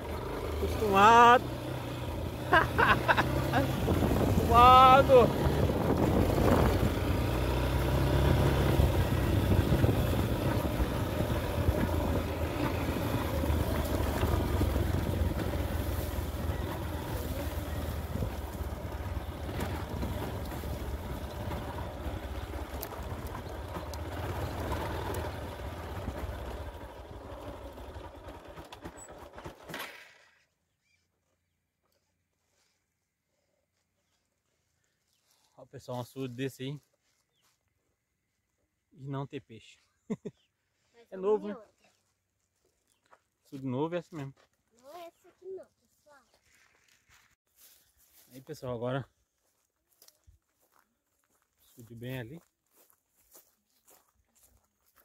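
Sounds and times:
small motorcycle engine running: 0:00.0 - 0:30.5
wind buffeting microphone: 0:03.6 - 0:07.3, 0:08.4 - 0:15.4.

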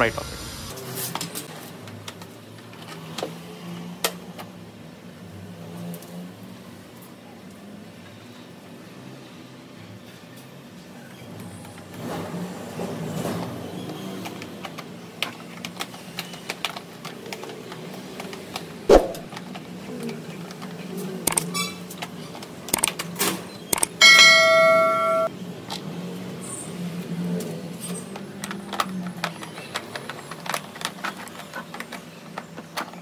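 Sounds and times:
quick clicks: 0:21.3 - 0:21.5, 0:22.7 - 0:23.0, 0:23.7 - 0:24.0
ringing bell chime: 0:24.0 - 0:25.3.

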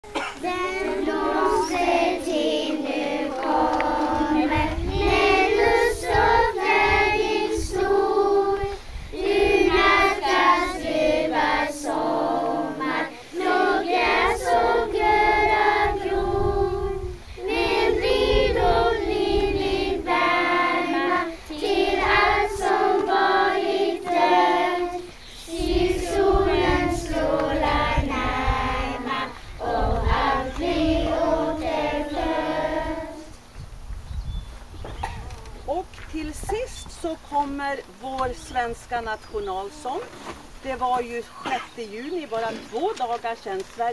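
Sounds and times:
children's choir singing: 0:00.1 - 0:33.4.

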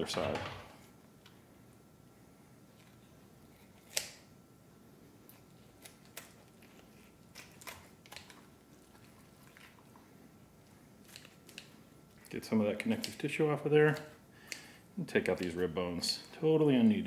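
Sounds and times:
wet squishes of raw meat: 0:05.4 - 0:10.0.

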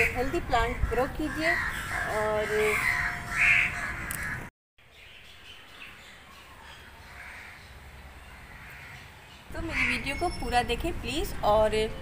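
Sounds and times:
crow cawing: 0:00.7 - 0:04.5, 0:07.0 - 0:07.7, 0:08.3 - 0:09.1.

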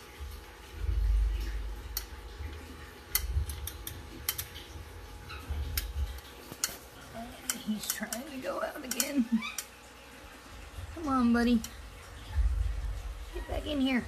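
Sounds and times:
microphone handling rumble: 0:12.2 - 0:13.3.

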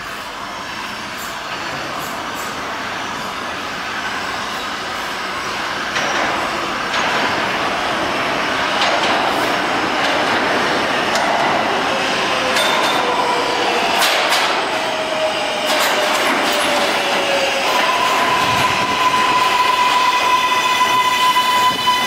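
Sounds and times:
subway train rumbling: 0:00.0 - 0:22.0
high-pitched brake whine: 0:15.0 - 0:22.0.

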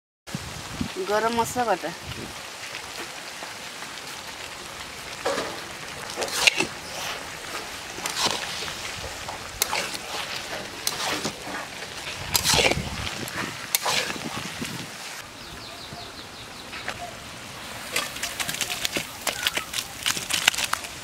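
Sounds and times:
curry stirred in wok squelching: 0:03.2 - 0:15.2.

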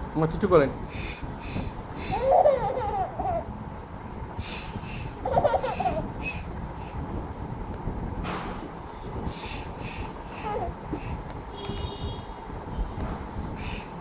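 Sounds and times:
baby laughing: 0:02.0 - 0:03.5, 0:05.0 - 0:07.0, 0:10.2 - 0:11.2.

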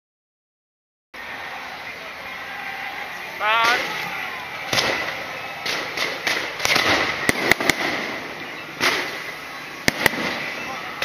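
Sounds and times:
fireworks crackling hiss: 0:01.2 - 0:11.0
fireworks sharp bangs: 0:02.8 - 0:11.0.

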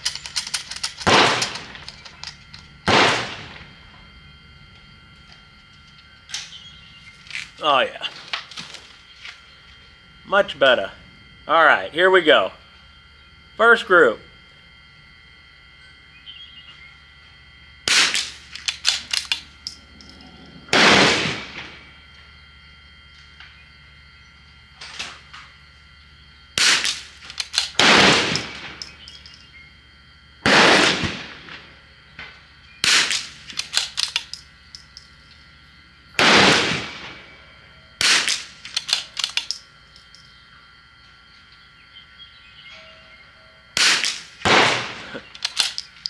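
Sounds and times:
rifle shots: 0:00.0 - 0:01.8, 0:02.9 - 0:03.6, 0:17.9 - 0:19.4, 0:20.7 - 0:21.8, 0:26.6 - 0:28.8, 0:30.4 - 0:31.6, 0:32.8 - 0:34.2, 0:36.2 - 0:37.2, 0:38.0 - 0:39.4, 0:43.8 - 0:45.8
rifle bolt being worked: 0:00.0 - 0:02.6, 0:18.5 - 0:19.8, 0:33.5 - 0:35.0, 0:38.7 - 0:40.2, 0:45.3 - 0:46.0.

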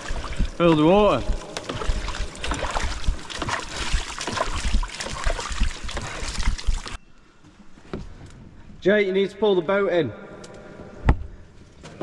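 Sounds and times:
water splashing and sloshing: 0:00.0 - 0:07.0.

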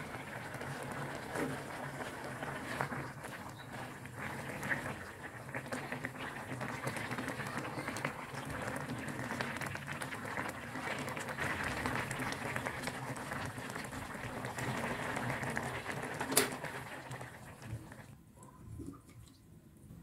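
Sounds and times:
spatula stirring: 0:00.0 - 0:07.1
broth bubbling in a pan: 0:00.0 - 0:19.5.

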